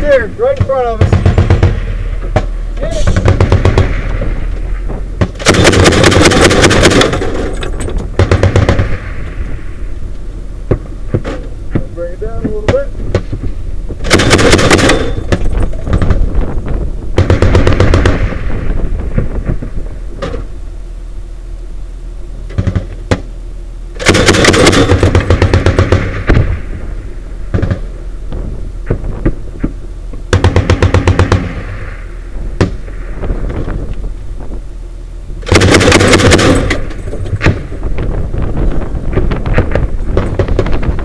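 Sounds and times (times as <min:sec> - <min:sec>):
single gunshots: 0:00.7 - 0:04.5, 0:14.0 - 0:16.1, 0:17.2 - 0:18.7
automatic grenade launcher firing: 0:14.0 - 0:15.6, 0:35.4 - 0:37.7.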